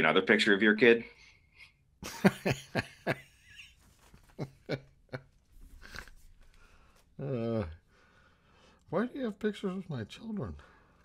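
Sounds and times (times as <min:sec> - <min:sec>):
men laughing: 0:02.0 - 0:06.1
soft breathing: 0:05.5 - 0:08.9, 0:10.5 - 0:11.0.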